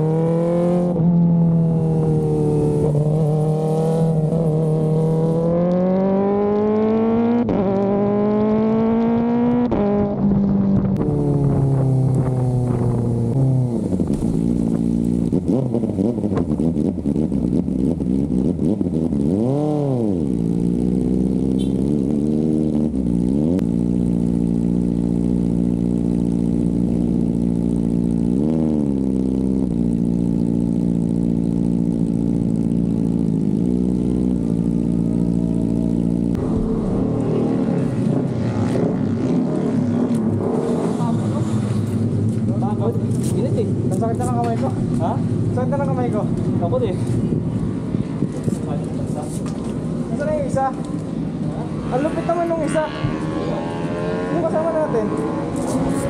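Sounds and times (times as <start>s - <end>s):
motorcycle engine revving: 0.0s - 56.0s
wind noise on microphone: 8.3s - 15.5s.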